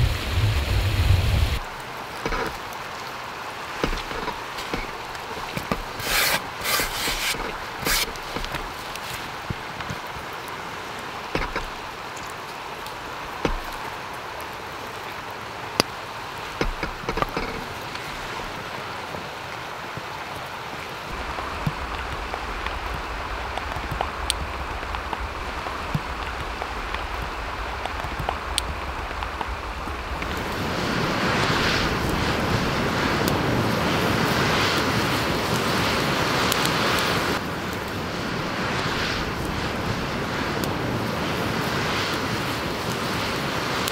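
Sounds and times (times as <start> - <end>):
deep wind rumble: 0.0 - 1.7, 21.1 - 43.9
mountain torrent rushing: 0.0 - 43.9
sharp clicks and knocks: 11.3 - 11.8, 16.6 - 18.0.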